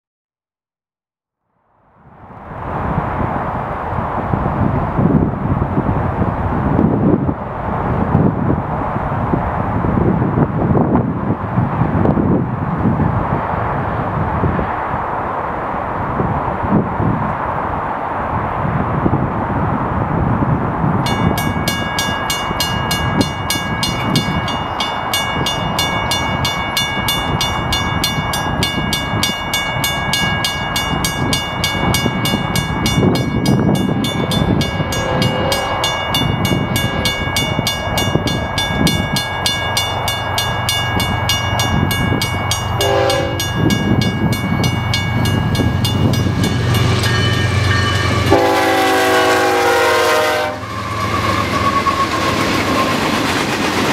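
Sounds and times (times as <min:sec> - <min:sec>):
diesel locomotive engine rumble: 0:02.1 - 0:53.9
crossing warning bell ringing: 0:21.0 - 0:53.2
train horn: 0:34.4 - 0:37.2, 0:42.8 - 0:43.8, 0:46.7 - 0:52.9.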